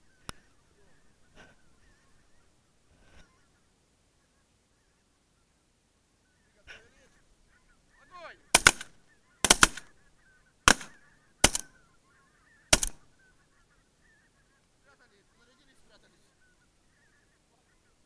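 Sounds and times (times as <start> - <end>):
loud shotgun shots: 8.6 - 9.9, 10.7 - 11.6, 12.7 - 13.0
geese honking: 9.1 - 14.7, 15.3 - 18.0.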